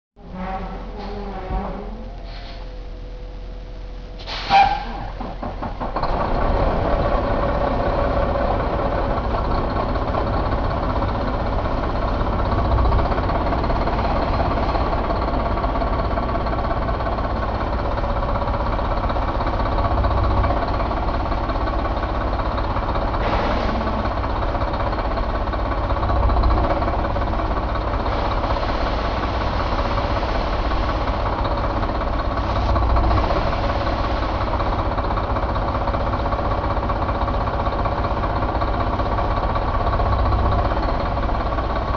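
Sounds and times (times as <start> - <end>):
diesel truck engine idling: 0.2 - 41.9.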